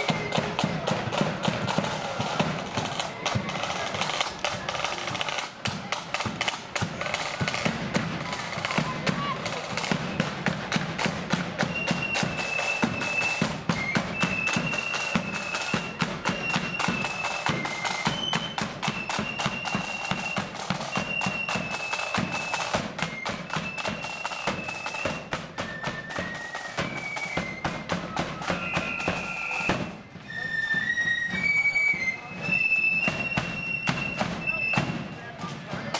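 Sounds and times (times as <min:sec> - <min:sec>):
flutes playing high melody: 0:00.0 - 0:01.3, 0:11.6 - 0:35.0
rapid side-drum strokes: 0:00.0 - 0:30.3, 0:32.0 - 0:35.9.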